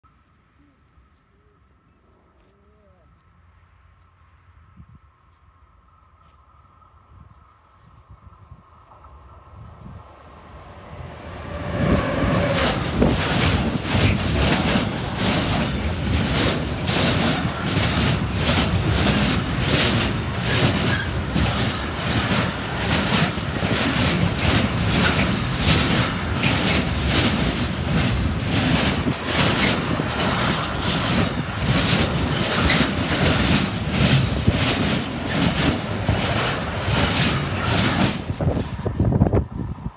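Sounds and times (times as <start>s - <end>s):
train wheels rumbling on rails: 5.2s - 39.9s
clickety-clack of wheelsets: 12.5s - 38.8s.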